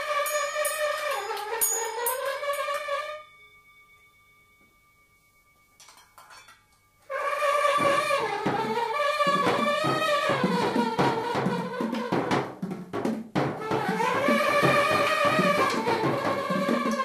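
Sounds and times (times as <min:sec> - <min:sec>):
faint steady tone: 0:00.0 - 0:07.2
light jingling percussion: 0:00.0 - 0:17.0
wind instrument holding note: 0:07.1 - 0:12.2, 0:13.6 - 0:17.0.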